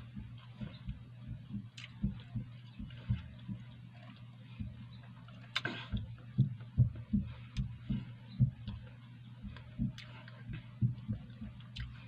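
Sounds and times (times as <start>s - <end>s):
steady low hum: 0.0s - 12.0s
wet mouth clicks: 1.8s - 2.0s, 11.7s - 12.0s
chewing with mouth closed: 1.8s - 4.3s, 11.6s - 12.0s.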